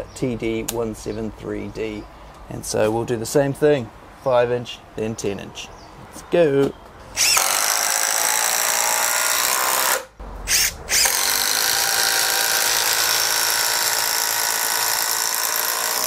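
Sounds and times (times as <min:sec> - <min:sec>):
impact driver driving screws: 0:07.2 - 0:16.0.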